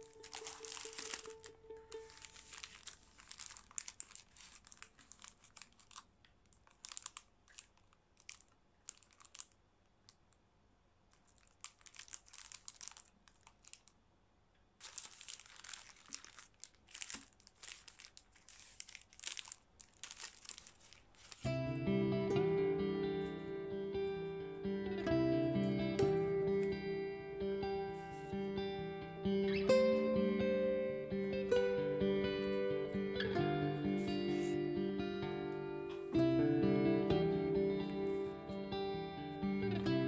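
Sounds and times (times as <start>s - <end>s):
foil wrappers crinkling: 0.0s - 10.2s, 11.1s - 14.0s, 14.8s - 21.5s, 34.0s - 34.5s.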